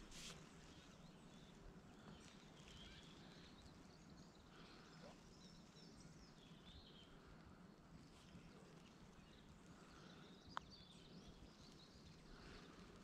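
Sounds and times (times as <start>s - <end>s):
faint bird chirps: 0.3s - 13.0s.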